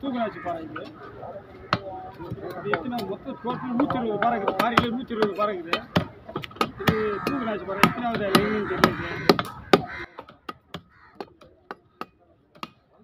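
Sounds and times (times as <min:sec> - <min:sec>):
knife chopping fish on wood: 0:04.5 - 0:12.8.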